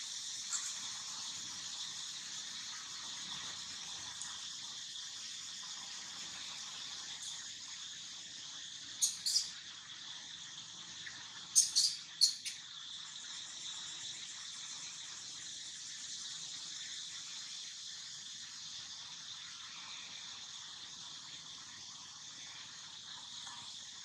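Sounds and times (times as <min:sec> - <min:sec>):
chorus of forest insects: 0:09.0 - 0:09.5, 0:11.6 - 0:12.6
short sharp chirps: 0:09.0 - 0:09.5, 0:11.6 - 0:12.6.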